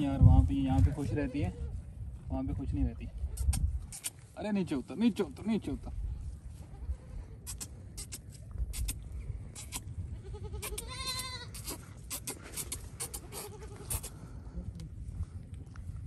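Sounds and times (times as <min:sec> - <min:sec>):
goat bleating: 0:09.6 - 0:14.2.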